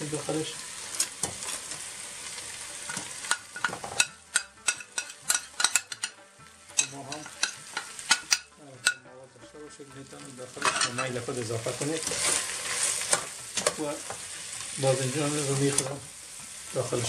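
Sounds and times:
chicken and onions sizzling in oil: 0:00.0 - 0:17.0
spoon tapping and scraping a bowl: 0:02.9 - 0:09.0.

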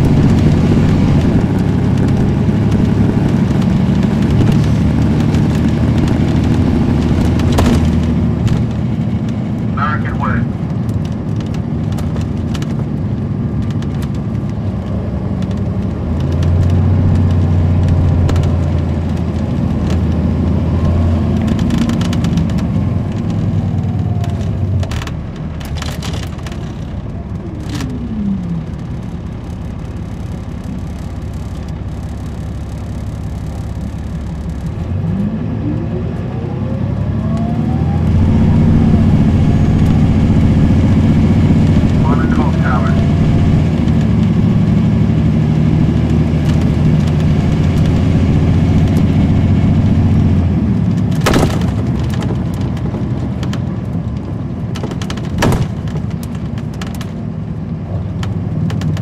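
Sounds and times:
rattles and clicks: 0:00.0 - 0:09.7, 0:10.7 - 0:20.2, 0:45.9 - 0:57.3
diesel coach engine running: 0:00.0 - 0:59.0.

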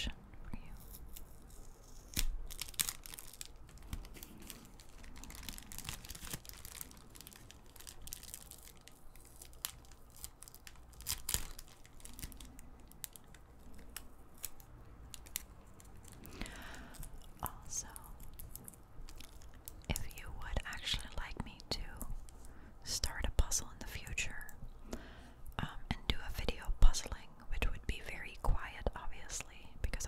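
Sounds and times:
plastic bag crinkling and tearing: 0:00.6 - 0:21.6.

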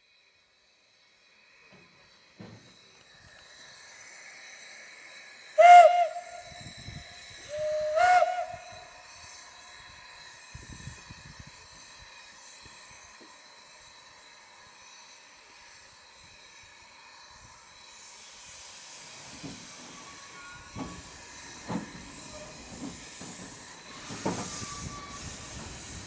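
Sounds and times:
steady steam hiss: 0:00.0 - 0:26.0
steam whistle blasts: 0:05.6 - 0:09.4, 0:22.0 - 0:22.9, 0:23.8 - 0:26.0.

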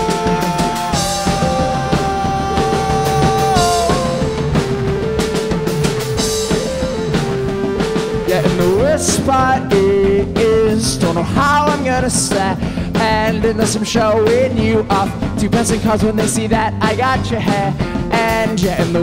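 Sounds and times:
rock band playing live: 0:00.0 - 0:19.0.

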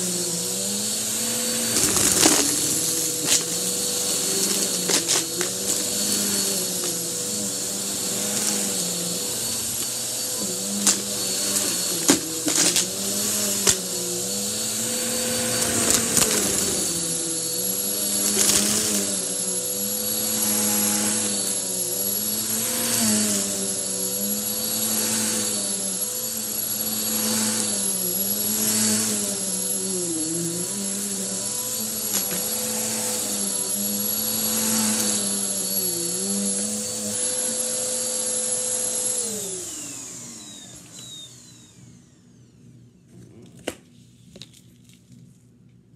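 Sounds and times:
upright vacuum cleaner running: 0:00.0 - 0:43.6.

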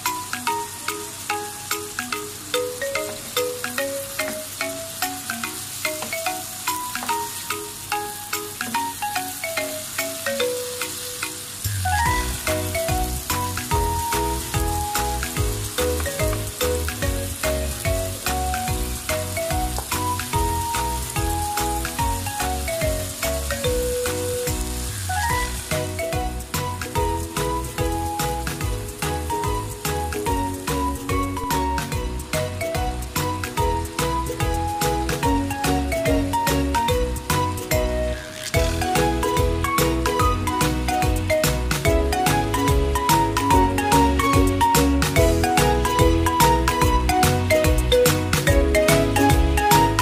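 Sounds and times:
beef and onions sizzling in a pan: 0:00.0 - 0:35.9
background music with bass and beat: 0:02.9 - 0:50.0.

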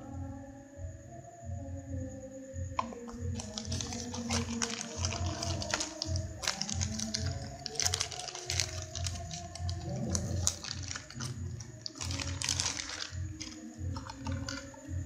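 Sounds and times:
background music with low beat: 0:00.0 - 0:15.0
plastic packaging crinkling: 0:02.8 - 0:14.8.

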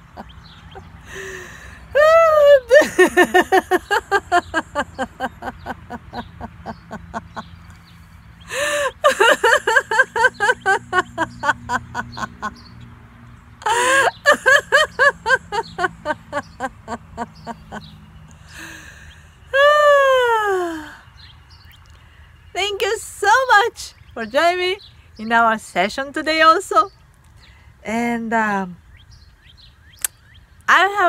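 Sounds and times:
woman laughing heartily: 0:00.0 - 0:07.8, 0:08.4 - 0:12.7, 0:13.6 - 0:21.0.

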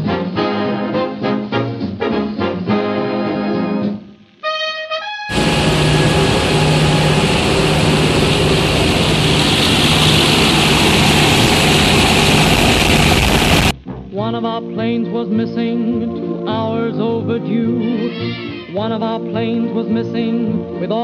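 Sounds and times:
aircraft engines droning: 0:05.3 - 0:13.7
loud wind rush: 0:05.3 - 0:13.7.

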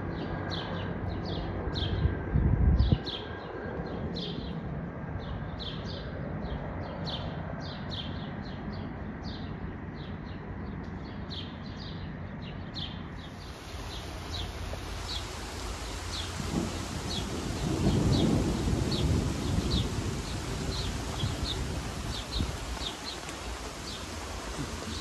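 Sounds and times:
low rushing wind: 0:00.0 - 0:11.3, 0:11.9 - 0:25.0
songbird chirping: 0:11.3 - 0:25.0.

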